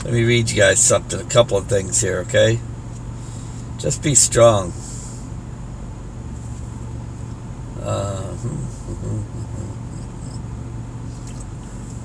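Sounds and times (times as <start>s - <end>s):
steady low hum: 0.0s - 12.0s
murmured sound: 7.8s - 10.3s
high-pitched whine: 7.8s - 11.4s.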